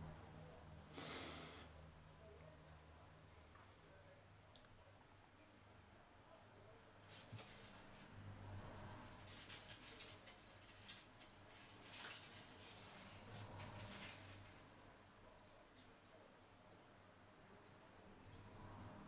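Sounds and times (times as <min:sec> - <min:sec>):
cricket chirping: 0:09.1 - 0:10.7, 0:11.3 - 0:14.8, 0:15.4 - 0:16.3.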